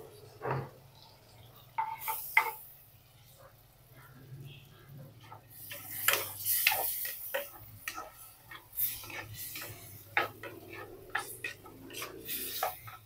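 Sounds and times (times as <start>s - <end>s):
liquid sizzling in hot pot: 0.0s - 13.0s
wooden spatula scraping clay pot: 5.2s - 13.0s.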